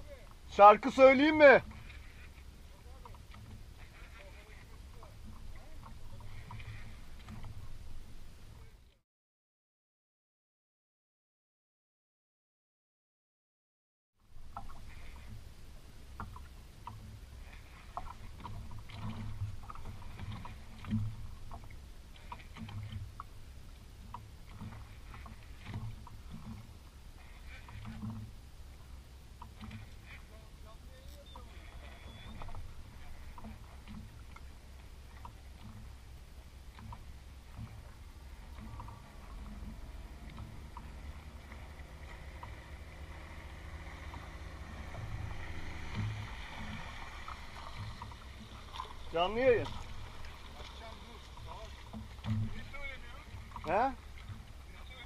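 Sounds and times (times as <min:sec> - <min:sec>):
water lapping against boat: 0:00.0 - 0:09.0, 0:14.2 - 0:55.0
low knocks: 0:51.3 - 0:54.6.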